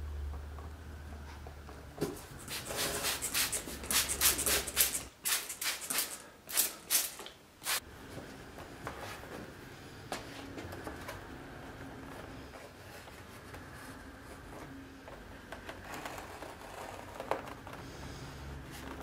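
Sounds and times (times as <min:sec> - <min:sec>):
spray bottle squirting: 0:02.4 - 0:07.8.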